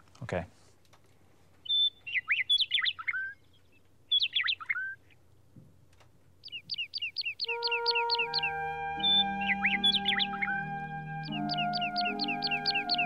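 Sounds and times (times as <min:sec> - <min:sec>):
imitated bird chirps: 0:01.6 - 0:05.0, 0:06.4 - 0:13.0
soft music chords: 0:07.5 - 0:13.0.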